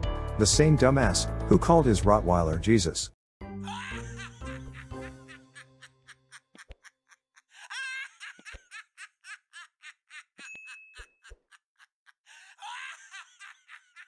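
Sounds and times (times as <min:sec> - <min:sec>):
laugh track giggling: 0:03.6 - 0:14.0.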